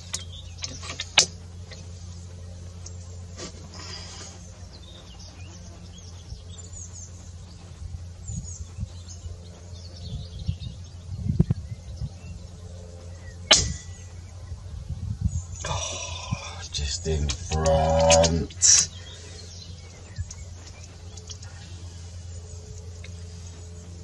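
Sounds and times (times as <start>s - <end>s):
low steady rumble: 0.0s - 24.0s
air rifle shot: 13.5s - 13.9s
faint bird chirps: 17.4s - 24.0s.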